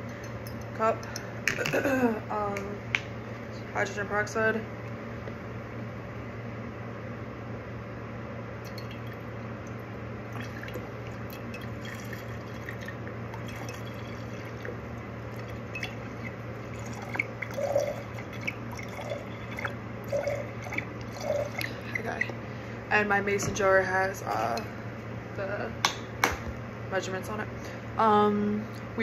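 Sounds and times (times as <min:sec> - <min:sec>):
steady low hum: 0:00.0 - 0:29.0
liquid trickling into glass jar: 0:08.6 - 0:09.3, 0:10.3 - 0:22.3.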